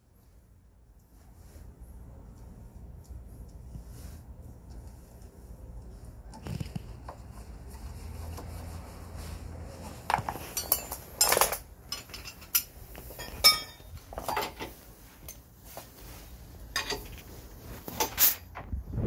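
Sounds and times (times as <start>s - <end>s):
metal hand tools clinking: 10.2s - 14.7s, 16.8s - 17.2s.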